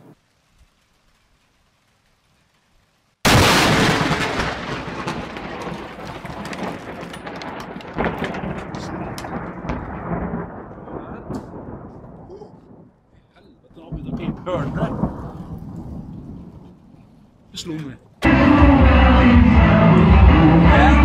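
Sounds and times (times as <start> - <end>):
thunder crack and rumble: 3.2 - 17.6.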